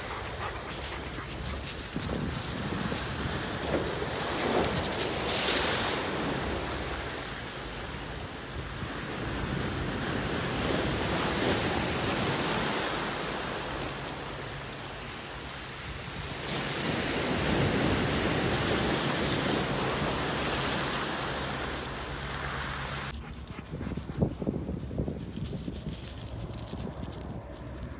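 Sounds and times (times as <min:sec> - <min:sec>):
waves washing up pebble beach: 0:08.8 - 0:23.1.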